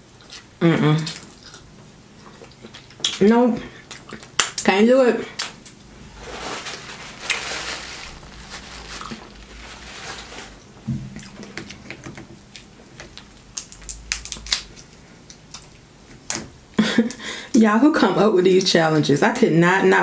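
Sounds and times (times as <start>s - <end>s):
napkin rustling: 6.0s - 11.5s
crab shells cracking: 11.2s - 16.4s.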